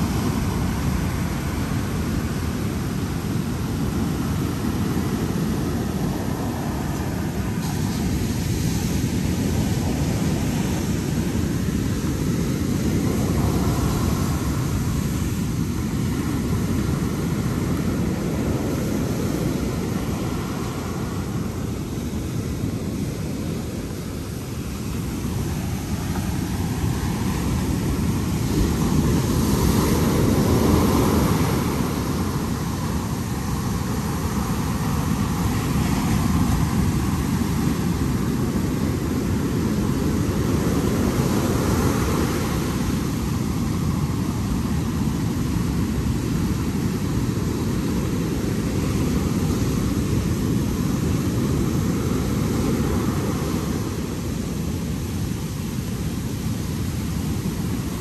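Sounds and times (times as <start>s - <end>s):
sea waves breaking on beach: 0.0s - 58.0s.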